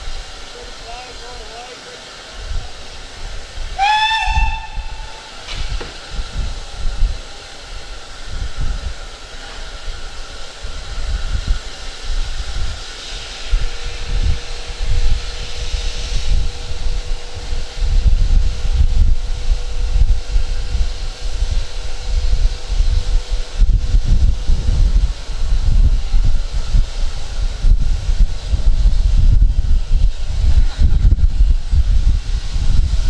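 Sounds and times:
steam hissing: 0.0 - 33.0
wind rumble on microphone: 2.4 - 33.0
steam whistle: 3.8 - 5.4.

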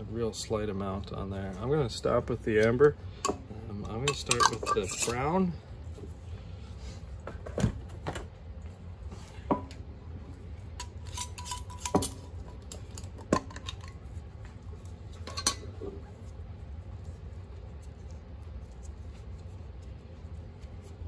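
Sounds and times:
low steady hum: 0.0 - 21.0
glass jars clinking and knocking: 4.0 - 5.2.

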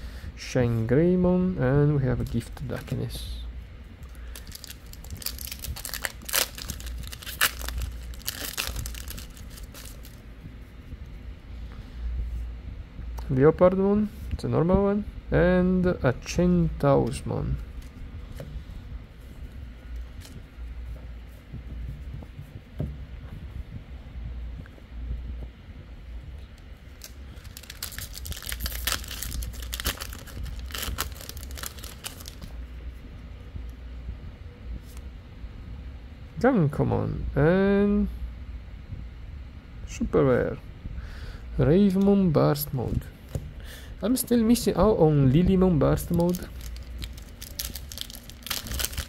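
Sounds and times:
wrapper rustling: 4.0 - 10.2, 27.0 - 32.5, 46.0 - 49.0
wrapper tearing and crinkling: 4.3 - 10.2, 27.0 - 32.5, 46.0 - 49.0.

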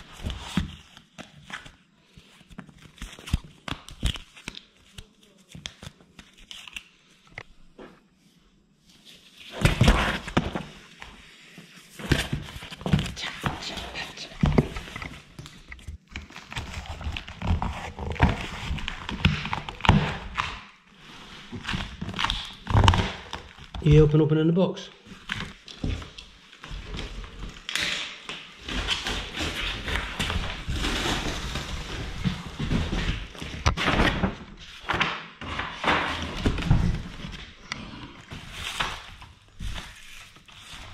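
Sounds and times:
plastic wrap rustling: 25.1 - 35.0.

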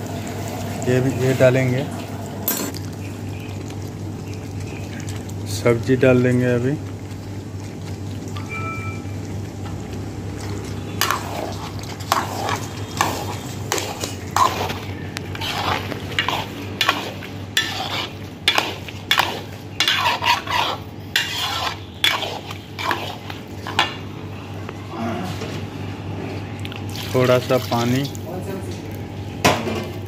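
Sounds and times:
metal spatula scraping a pan: 11.0 - 23.9.

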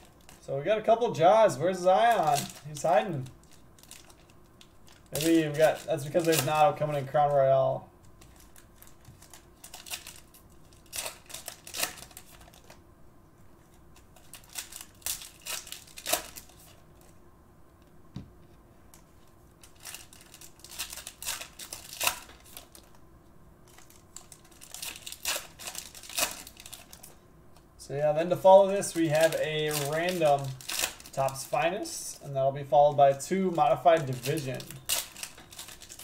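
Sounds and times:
foil wrapper crinkling: 0.0 - 0.4, 1.2 - 7.4, 8.0 - 12.8, 13.6 - 17.2, 19.6 - 23.0, 23.6 - 27.2, 28.2 - 36.0
cards being handled: 2.0 - 7.1, 28.4 - 31.7, 32.8 - 36.0.

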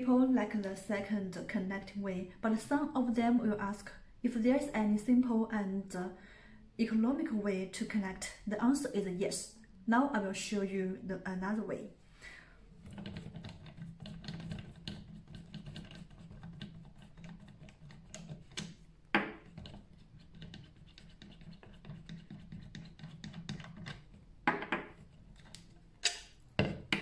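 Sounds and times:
light scratching and clicks: 12.8 - 18.8, 19.4 - 24.2.

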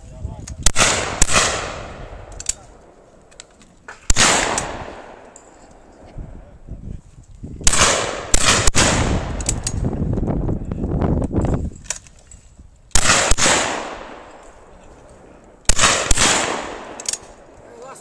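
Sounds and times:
shotgun shots: 0.6 - 2.7, 4.0 - 5.3, 7.6 - 9.6, 12.9 - 14.4, 15.6 - 17.5.

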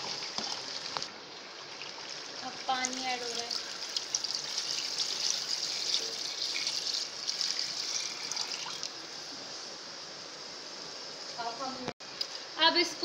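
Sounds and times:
water pouring into a pot: 0.0 - 9.0.

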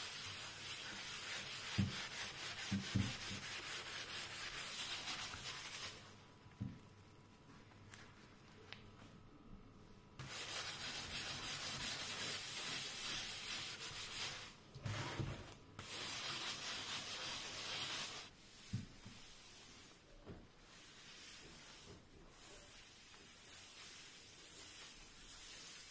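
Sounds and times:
sponge scrubbing gritty paste: 10.2 - 15.2, 15.8 - 20.0, 20.7 - 25.9.

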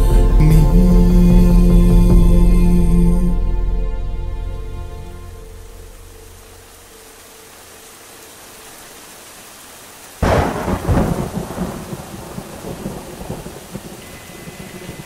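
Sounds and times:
steady rain: 0.0 - 3.4, 4.4 - 15.0
thunderclap rumbling: 10.2 - 15.0.

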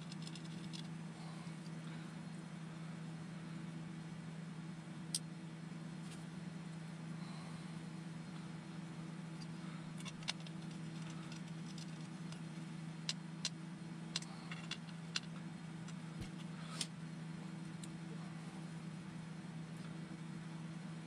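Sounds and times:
small hard parts clicking: 0.0 - 0.9, 10.0 - 16.0
steady low hum: 0.0 - 21.0.

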